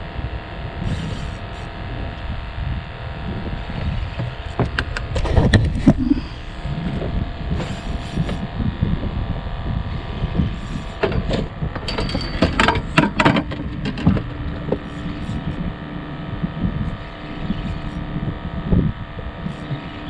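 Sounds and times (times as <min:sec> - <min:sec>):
wind: 0:00.0 - 0:20.0
sharp clicks and knocks: 0:03.8 - 0:06.1, 0:11.0 - 0:15.6.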